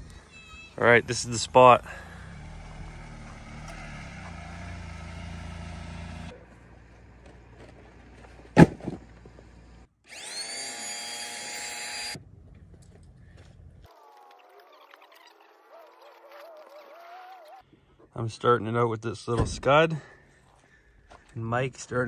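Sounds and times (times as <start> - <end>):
vehicle engine and road rumble: 0.0 - 9.9, 12.2 - 13.9
electric air pump whirring: 10.1 - 12.2.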